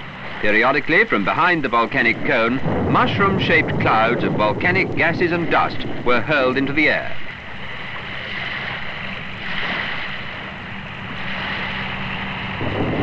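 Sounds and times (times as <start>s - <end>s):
steady rushing noise: 0.0s - 13.0s.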